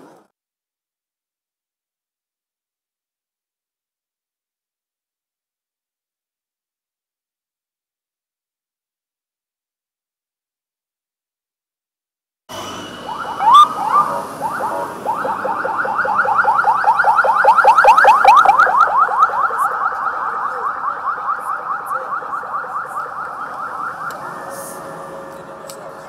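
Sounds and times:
police siren yelping: 12.8 - 25.3.

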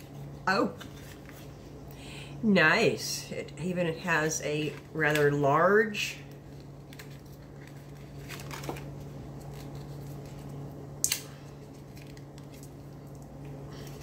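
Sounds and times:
steady low hum: 0.0 - 14.0
paper leaflet unfolding: 6.9 - 10.5.

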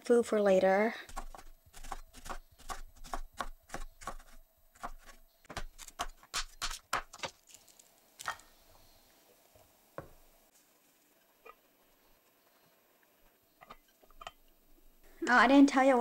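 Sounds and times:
knife chopping on cutting board: 1.1 - 7.3.

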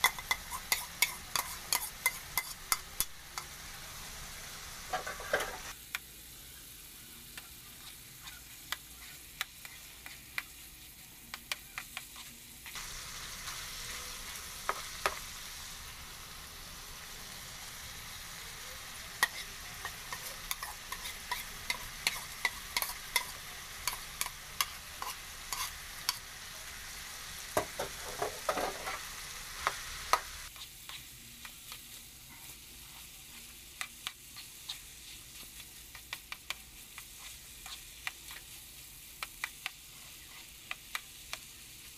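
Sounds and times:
spatula scraping a pan: 0.0 - 3.5, 7.7 - 12.8, 18.9 - 26.2, 27.7 - 38.6
meat sizzling in a frying pan: 0.0 - 41.9.

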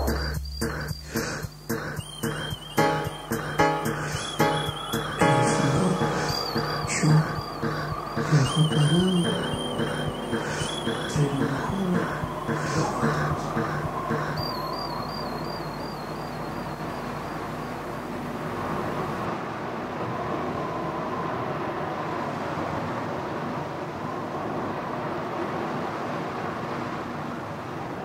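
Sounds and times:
faint warbling high tone: 0.0 - 17.9
outdoor rumble and hiss: 11.8 - 28.0.

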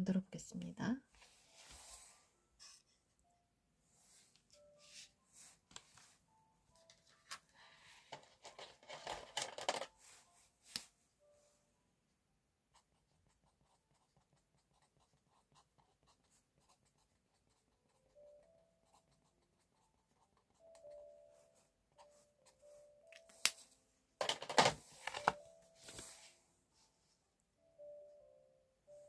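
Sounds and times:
soft background music: 0.0 - 29.0
paper pad rustling: 8.2 - 10.1, 24.2 - 26.4
marker scratching on paper: 12.8 - 18.1.

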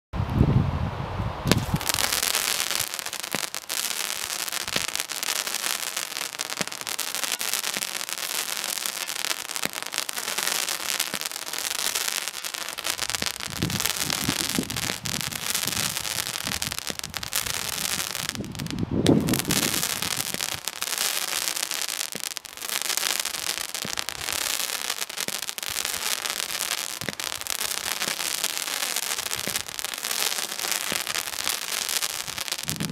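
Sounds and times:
firework crackling: 1.4 - 32.9
low firework thumps: 1.5 - 3.6, 23.4 - 24.5, 25.2 - 32.9.

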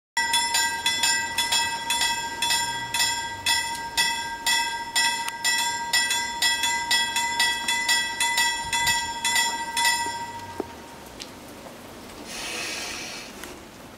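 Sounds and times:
railway warning bell ringing: 0.2 - 11.0.

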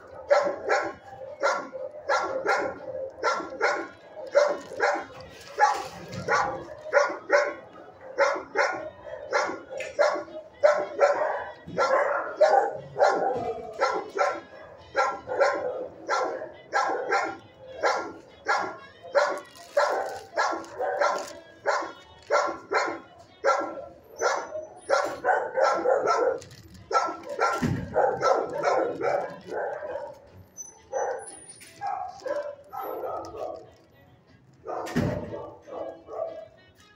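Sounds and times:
dogs barking: 0.0 - 33.9, 34.6 - 36.6.

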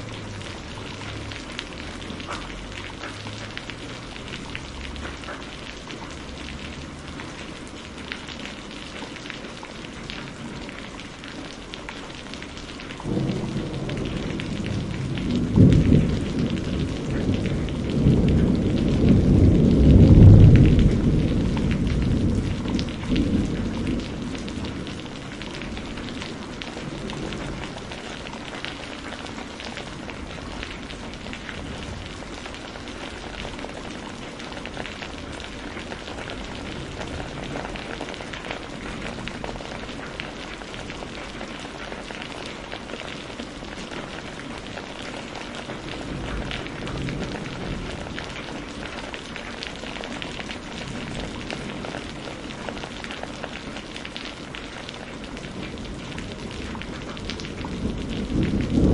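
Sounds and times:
rain streaming off a tiled roof: 0.0 - 58.9
thunder rolling: 13.1 - 28.6, 55.6 - 58.9.

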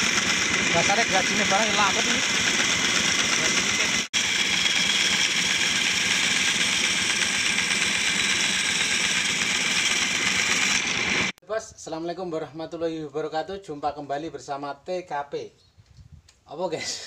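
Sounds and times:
bandsaw cutting wood: 0.0 - 11.4.

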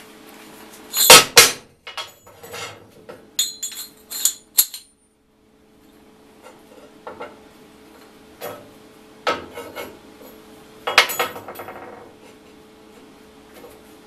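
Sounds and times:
ringing metal clatter: 3.4 - 4.9
steel parts knocking and clinking: 3.4 - 4.9.

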